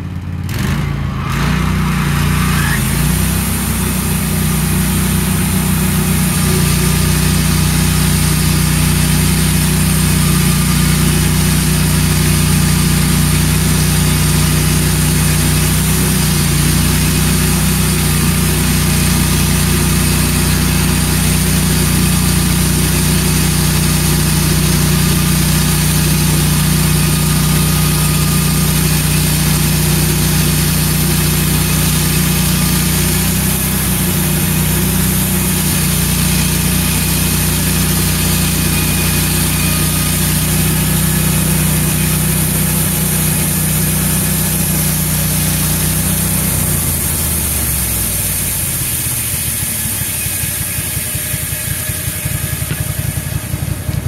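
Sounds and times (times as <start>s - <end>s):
sawmill engine running: 0.0s - 54.0s
band blade cutting log: 0.5s - 54.0s.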